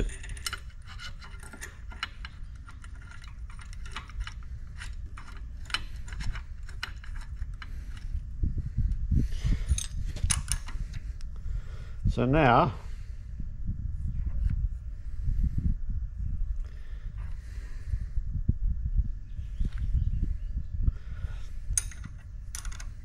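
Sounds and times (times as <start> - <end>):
small metallic clicks and rattles: 0.0 - 8.2, 9.6 - 11.0, 21.7 - 23.0.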